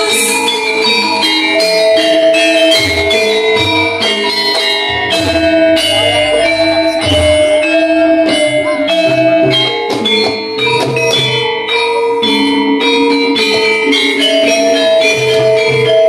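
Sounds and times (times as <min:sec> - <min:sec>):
gamelan music: 0:00.0 - 0:16.0
low drum beats: 0:04.9 - 0:11.5.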